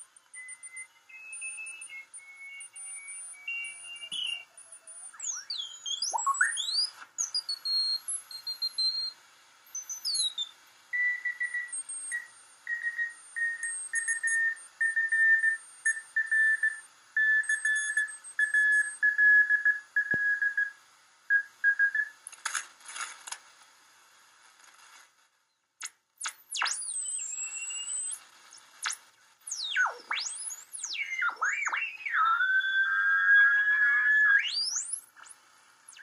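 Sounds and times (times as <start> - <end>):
static crackles: 20.1 - 36.0
gliding whistle: 30.9 - 35.0.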